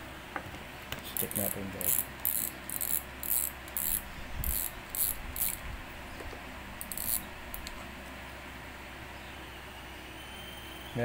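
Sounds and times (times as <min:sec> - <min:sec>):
fishing reel drag ratcheting clicks: 0:01.2 - 0:05.6, 0:06.8 - 0:07.7.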